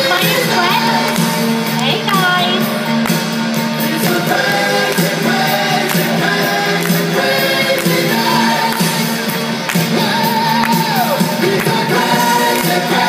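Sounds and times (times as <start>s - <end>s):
pop song: 0.0s - 13.0s.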